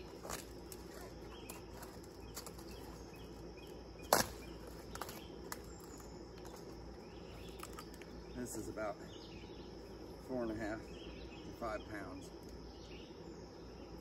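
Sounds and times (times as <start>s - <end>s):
cabbage stalk cracking: 7.5s - 8.1s.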